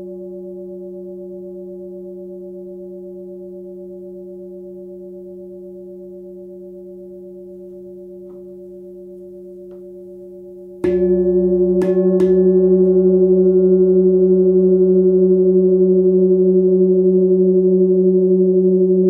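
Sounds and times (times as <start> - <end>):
singing bowl ringing: 7.3 - 18.9
singing bowl strikes: 10.8 - 16.1.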